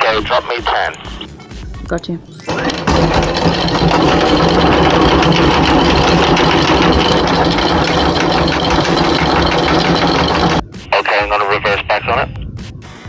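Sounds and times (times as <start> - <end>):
anchor chain rattling: 2.5 - 10.6
windlass motor running: 2.5 - 10.6.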